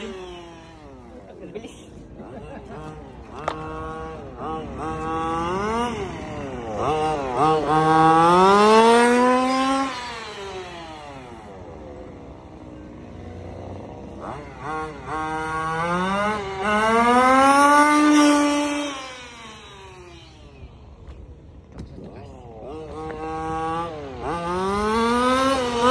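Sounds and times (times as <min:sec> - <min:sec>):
small engine at high revs: 0:00.0 - 0:25.9.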